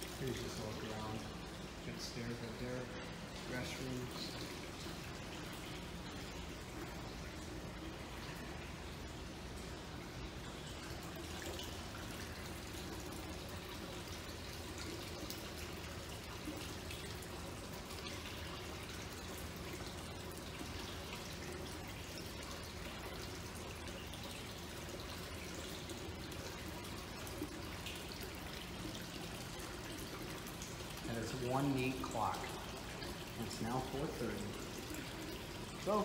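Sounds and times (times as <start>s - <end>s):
water fountain trickling: 0.0s - 36.0s.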